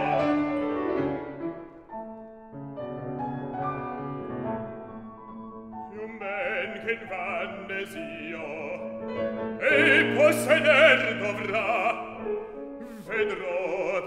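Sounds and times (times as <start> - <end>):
piano accompaniment: 0.0 - 14.0
baritone singing with vibrato: 5.8 - 14.0.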